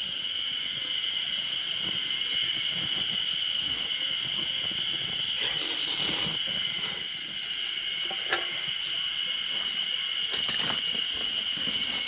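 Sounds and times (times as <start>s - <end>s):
high insect drone: 0.0s - 12.0s
metal stove clinks and knocks: 7.4s - 8.7s.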